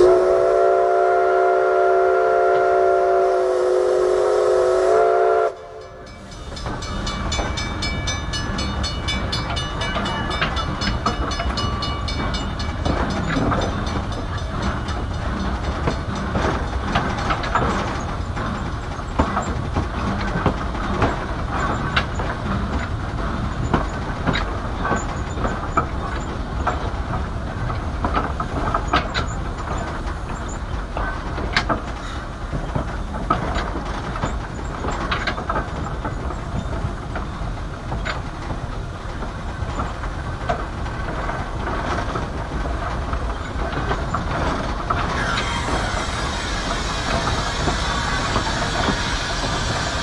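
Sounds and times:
steam train rumbling: 0.0 - 50.0
steam hissing: 3.1 - 5.2, 45.1 - 50.0
wheels clicking and knocking: 6.4 - 50.0.

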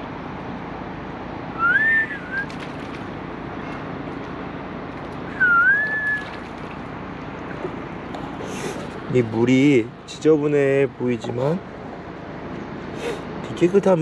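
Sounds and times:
person whistling: 1.6 - 2.5, 5.4 - 6.3.

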